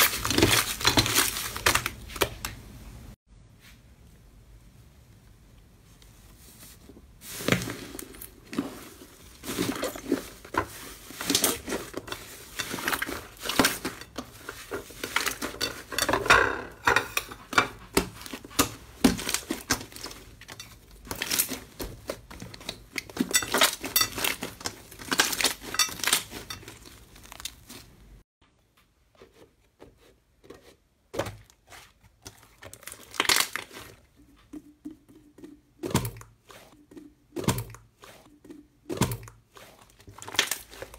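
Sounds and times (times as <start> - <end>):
plastic sheet crinkling: 0.0 - 2.6, 18.1 - 28.0, 31.6 - 34.0.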